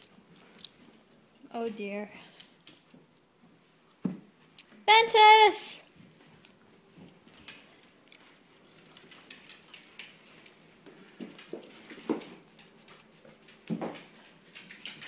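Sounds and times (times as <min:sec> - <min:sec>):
puppy claws pattering on wood floor: 0:05.9 - 0:15.0.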